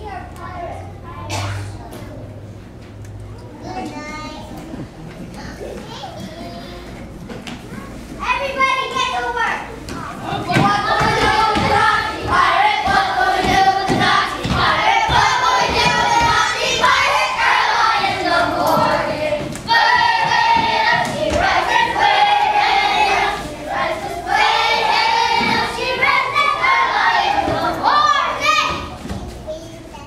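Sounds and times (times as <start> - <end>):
children singing together: 10.2 - 29.0.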